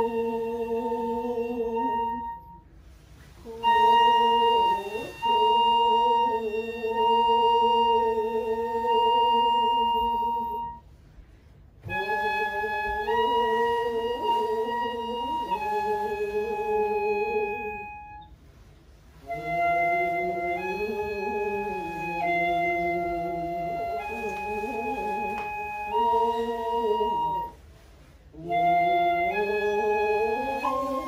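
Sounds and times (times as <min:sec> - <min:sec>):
bamboo flute slow melody: 0:00.0 - 0:11.0, 0:11.8 - 0:31.0.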